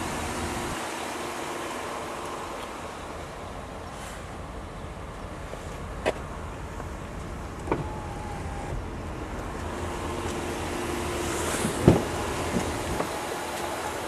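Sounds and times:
steady car cabin hum: 0:00.0 - 0:14.0
thump on door frame: 0:11.6 - 0:13.1.

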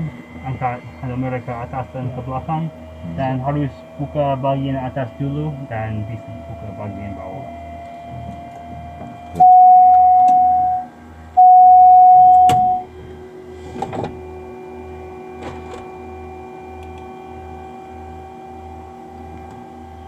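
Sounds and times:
electrical hum with low pulse: 0:00.0 - 0:20.0
electronic warning tones: 0:09.4 - 0:12.9.

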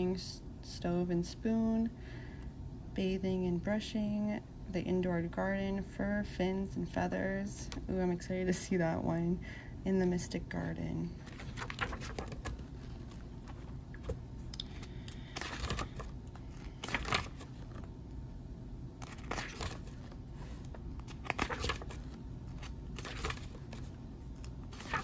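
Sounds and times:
book pages turning: 0:11.2 - 0:17.9, 0:19.0 - 0:25.0.

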